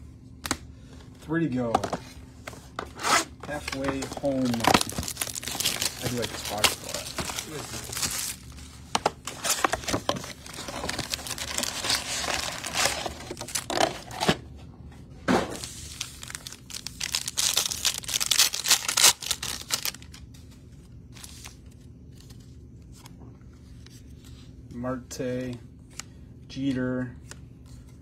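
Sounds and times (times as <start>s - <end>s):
packaging tearing and crinkling: 3.6s - 8.6s, 9.2s - 14.3s, 15.6s - 20.2s.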